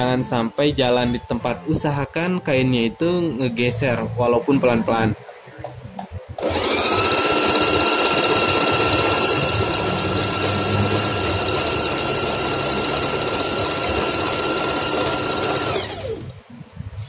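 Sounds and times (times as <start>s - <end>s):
sewing machine running: 6.4s - 16.3s.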